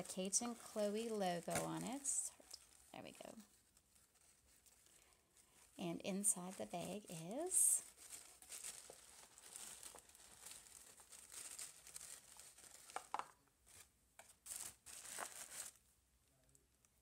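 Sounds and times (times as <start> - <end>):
tissue paper crinkling: 0.0 - 15.8.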